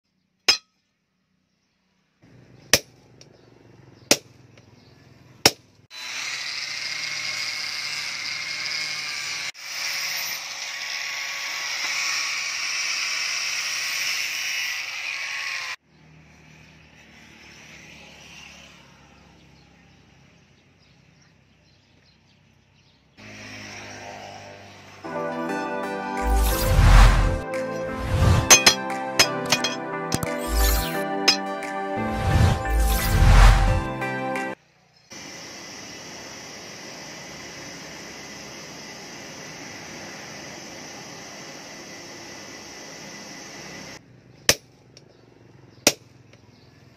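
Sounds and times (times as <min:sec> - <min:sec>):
sharp metal impacts: 0:00.5 - 0:00.8, 0:26.2 - 0:31.7
angle grinder grinding steel: 0:05.9 - 0:15.8, 0:26.2 - 0:34.0.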